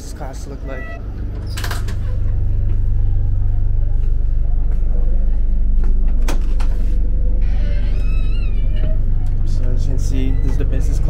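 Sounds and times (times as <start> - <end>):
diesel engines idling: 0.0 - 7.4, 9.0 - 11.0.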